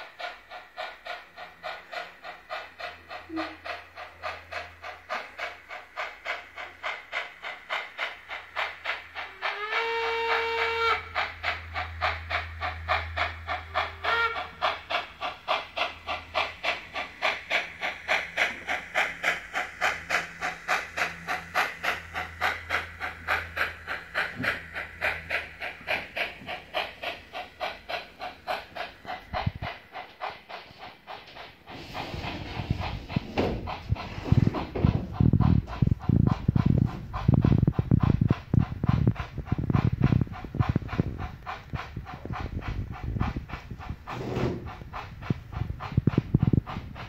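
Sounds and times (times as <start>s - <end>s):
model locomotive chuffing: 0.0s - 47.0s
steam hiss: 0.0s - 47.0s
model train steam whistle: 3.3s - 3.6s, 9.2s - 11.2s, 13.8s - 14.7s.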